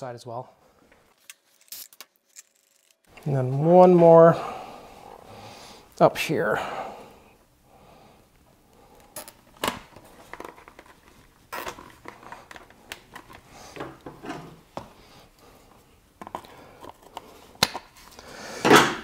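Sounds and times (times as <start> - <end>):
hands clicking and tapping parts: 16.2 - 18.0.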